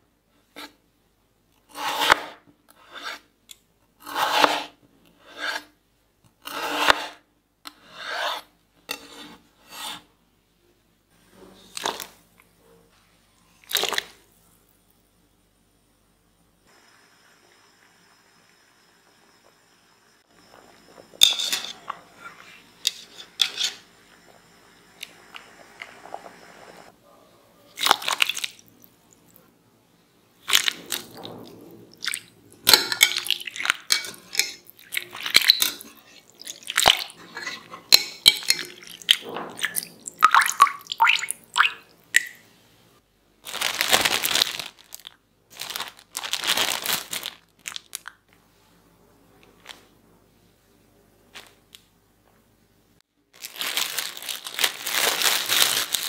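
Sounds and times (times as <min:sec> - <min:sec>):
plastic bag rustling: 0:43.4 - 0:48.0, 0:53.3 - 0:56.0.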